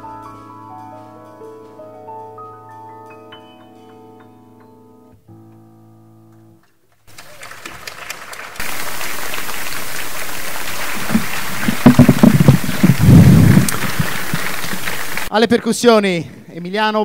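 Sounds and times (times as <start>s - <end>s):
piano chord: 0.0s - 6.7s
audience applause: 7.1s - 15.4s.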